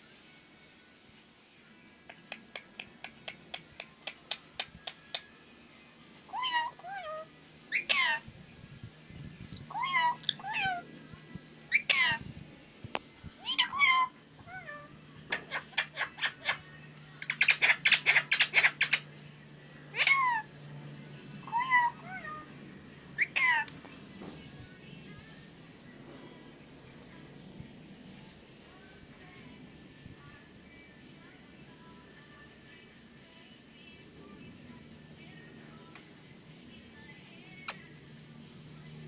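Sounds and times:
parakeets chirping and squawking: 0:06.3 - 0:08.2, 0:09.6 - 0:10.8, 0:11.7 - 0:12.2, 0:13.4 - 0:19.1, 0:19.9 - 0:20.5, 0:21.4 - 0:22.4, 0:23.2 - 0:23.7.

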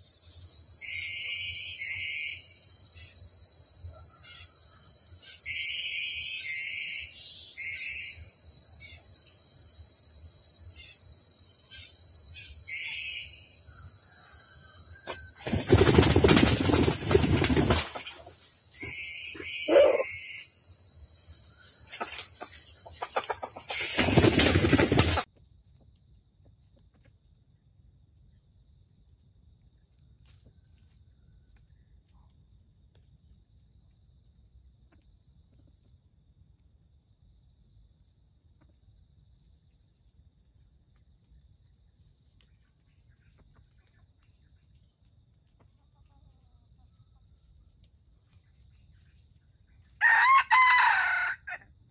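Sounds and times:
small chirps: 0:10.6 - 0:16.0, 0:18.0 - 0:27.2, 0:39.9 - 0:50.0
rooster crowing faintly: 0:13.7 - 0:15.4
short animal call: 0:18.8 - 0:20.4.

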